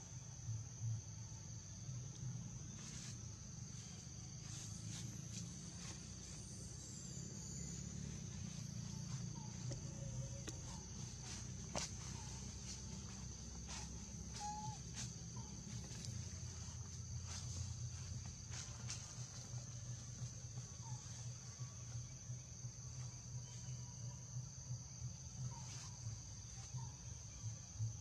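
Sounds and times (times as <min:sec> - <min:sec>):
insects chirring: 0:00.0 - 0:28.0
faint chirps: 0:02.8 - 0:24.2.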